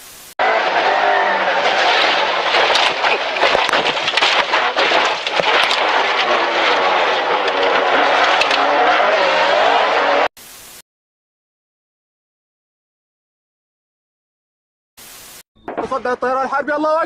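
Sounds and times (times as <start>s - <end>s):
rally car engine revving: 0.4s - 10.3s
road noise: 0.4s - 10.3s
knocks and rattles against body: 15.6s - 16.2s.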